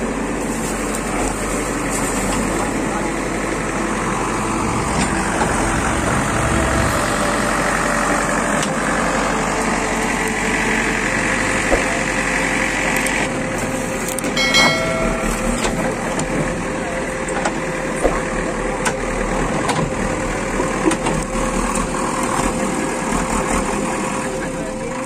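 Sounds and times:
diesel engine idling: 0.0 - 25.0
high steady whine: 2.2 - 18.0.

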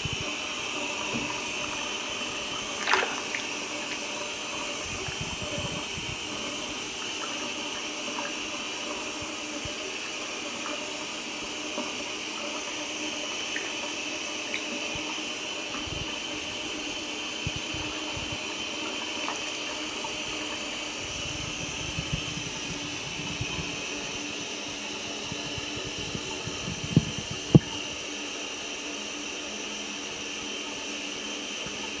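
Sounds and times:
tap water running into bathtub: 0.0 - 32.0.

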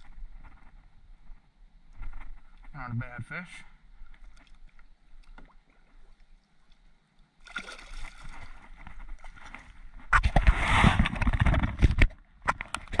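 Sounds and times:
water splashing and dripping: 7.4 - 9.7.

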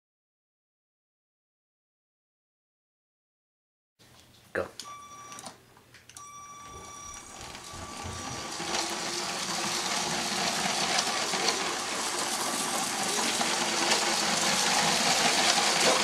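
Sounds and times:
toy train motor whine: 6.2 - 16.0
toy train wheels clattering on track: 6.8 - 16.0.

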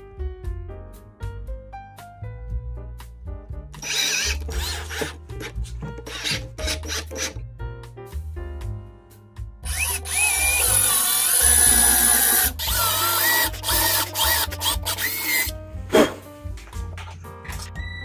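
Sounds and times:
background music with bass: 0.0 - 18.0
power drill whining: 3.8 - 5.2, 6.1 - 7.3, 9.7 - 15.5.

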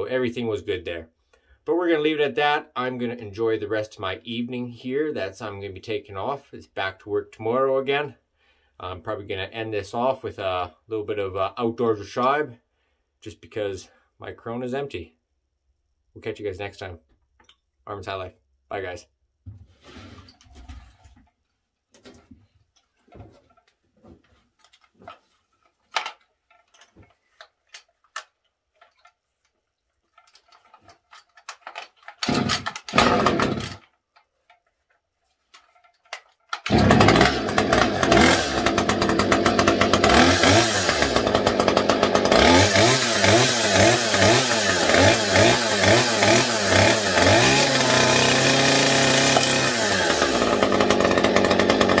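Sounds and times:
chainsaw revving: 32.2 - 33.8, 36.6 - 52.0
chainsaw pull-start bursts: 32.2 - 33.9, 36.5 - 52.0.

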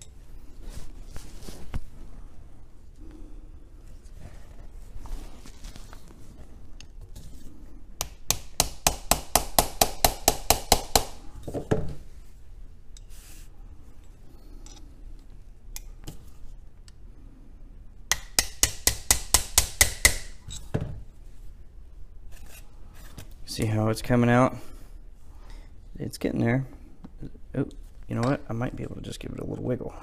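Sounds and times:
hammer tapping metal punch: 8.0 - 11.6, 18.1 - 20.3.

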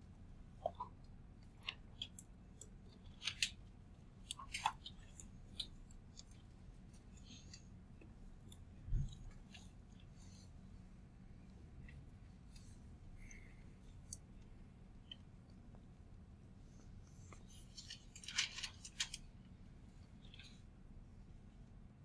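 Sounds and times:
faint clicks and crackles: 16.8 - 20.7.

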